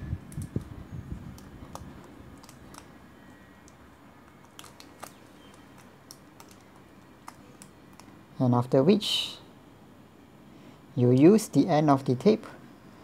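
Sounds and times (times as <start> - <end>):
plastic sleeve crinkling: 3.7 - 8.2.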